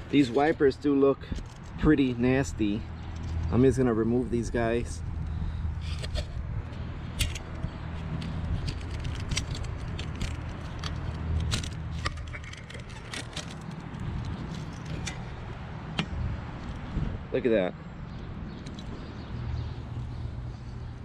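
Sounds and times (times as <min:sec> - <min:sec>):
wiper blade clicking and scraping: 0:05.8 - 0:16.9.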